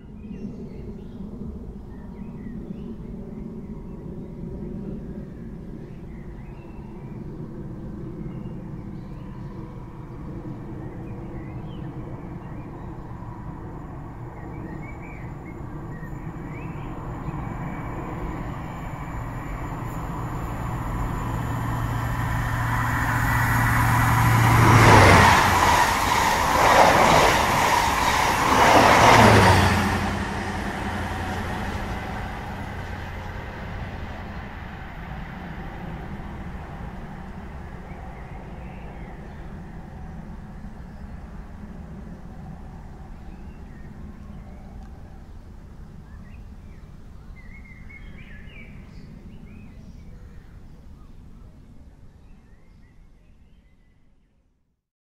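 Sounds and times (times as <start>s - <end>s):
train rumbling past: 9.2s - 45.2s.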